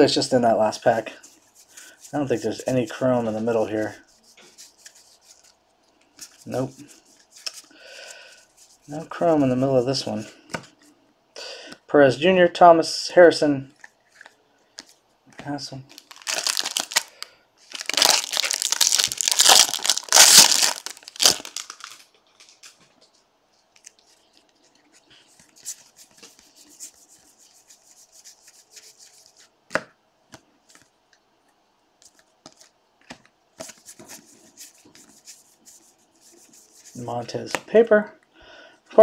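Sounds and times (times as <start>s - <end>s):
cards being handled: 1.2s - 9.0s, 13.7s - 17.1s, 17.7s - 30.9s, 32.0s - 37.8s
wrapper tearing and crinkling: 15.9s - 22.8s.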